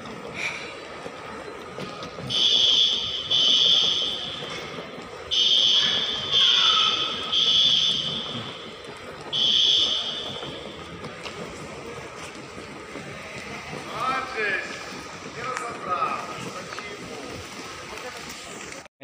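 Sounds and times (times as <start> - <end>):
high buzzing warning beeps: 5.3 - 8.7, 9.3 - 10.7.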